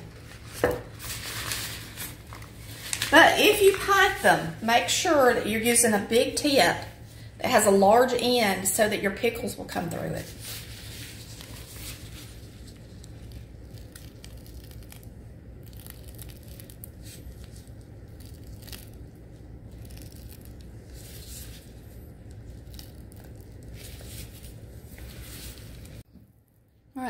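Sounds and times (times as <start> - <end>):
steady low hum: 0.0 - 27.0
piping bag crinkling and squishing: 0.1 - 4.3, 10.2 - 26.0.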